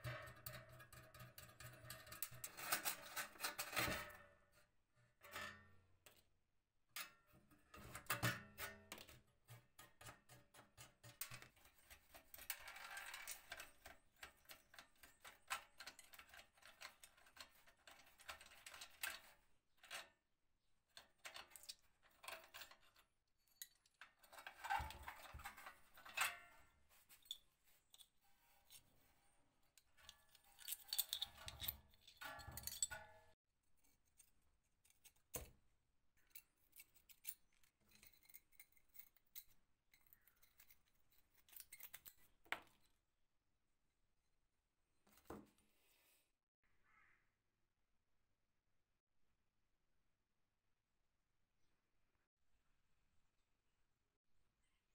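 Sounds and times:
small parts clicking and rattling: 9.9s - 20.1s, 29.8s - 33.4s, 36.2s - 42.8s.

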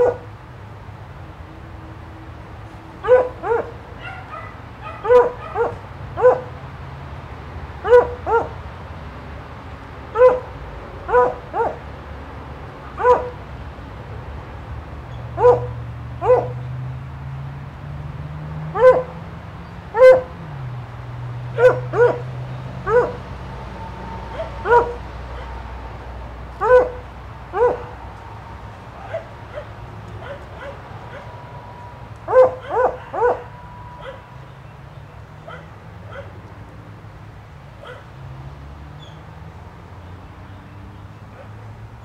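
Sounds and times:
dog barking: 0.0s - 0.3s, 3.0s - 6.6s, 7.8s - 8.6s, 10.2s - 11.9s, 13.0s - 13.4s, 15.3s - 16.6s, 18.7s - 19.2s, 19.9s - 20.4s, 21.5s - 23.3s, 24.2s - 25.6s, 26.6s - 28.0s, 29.0s - 34.4s, 35.4s - 36.4s, 37.8s - 38.2s, 41.3s - 41.7s.

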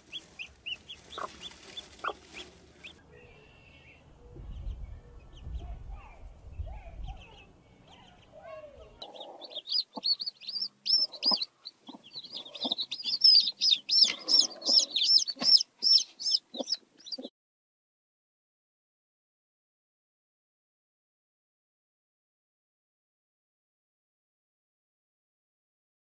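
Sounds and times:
baby chicks peeping: 0.0s - 17.3s
hen clucking softly: 0.1s - 3.0s, 9.0s - 17.3s.

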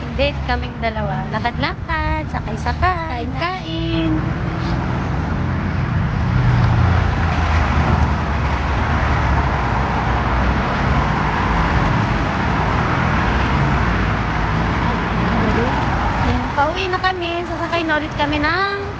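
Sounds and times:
road traffic noise: 0.0s - 18.9s.

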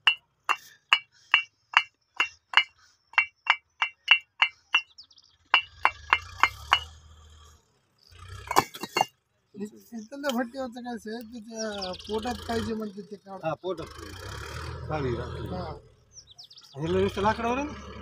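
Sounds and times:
brick knock: 0.0s - 4.8s, 5.6s - 6.9s
bricks clinking together: 0.0s - 4.9s, 5.6s - 6.9s, 8.5s - 9.1s.

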